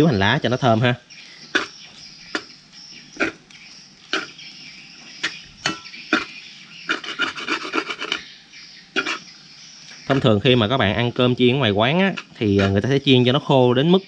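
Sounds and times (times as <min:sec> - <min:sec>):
metal spatula scraping a wok: 0:01.4 - 0:02.6, 0:03.2 - 0:04.4, 0:05.2 - 0:08.3, 0:08.9 - 0:09.3, 0:12.0 - 0:12.9.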